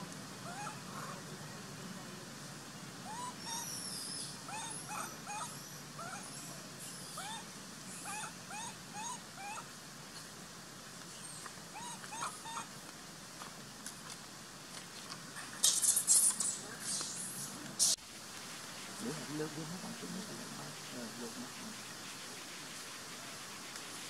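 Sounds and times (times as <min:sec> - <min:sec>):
monkey whimpering: 0:03.1 - 0:03.9, 0:08.0 - 0:09.6, 0:11.8 - 0:12.7.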